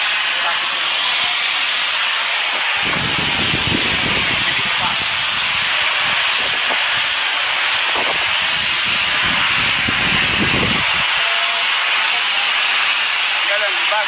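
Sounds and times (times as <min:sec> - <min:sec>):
pressure washer jet hissing: 0:00.0 - 0:14.0.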